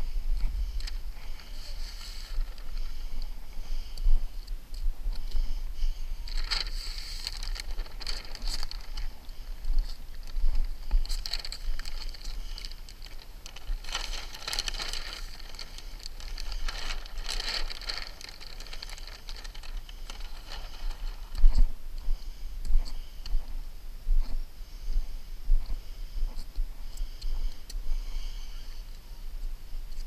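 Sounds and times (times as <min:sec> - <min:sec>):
paper liner peeling and crackling: 0:06.3 - 0:21.4.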